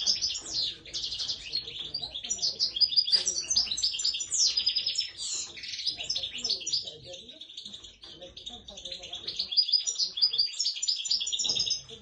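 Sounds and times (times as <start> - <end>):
songbird twittering: 0.0 - 12.0.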